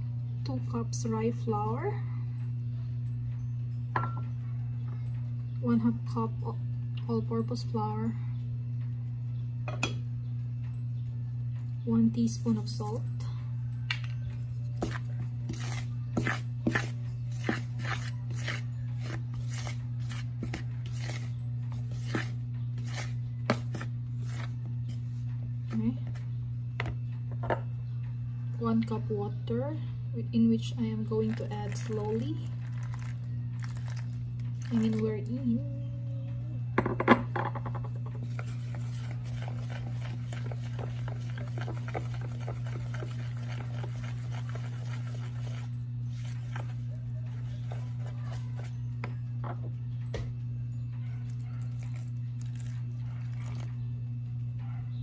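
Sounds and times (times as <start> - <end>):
low hum: 0.0 - 55.0
spoon scraping flour in bowl: 14.7 - 25.1, 38.2 - 49.1.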